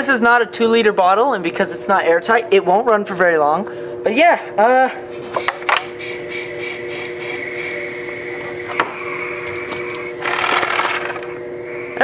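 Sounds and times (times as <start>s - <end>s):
compressed air hissing: 5.3s - 12.0s.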